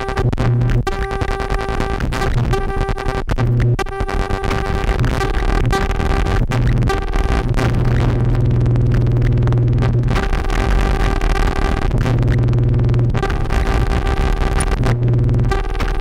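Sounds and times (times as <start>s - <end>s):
harsh electronic noise music: 0.0s - 16.0s
sharp clicks: 0.2s - 16.0s
low synthesizer drone: 3.5s - 16.0s.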